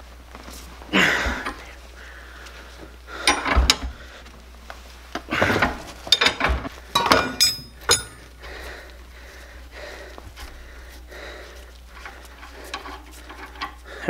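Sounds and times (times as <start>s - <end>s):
metal clinking and rattling: 6.1s - 8.3s.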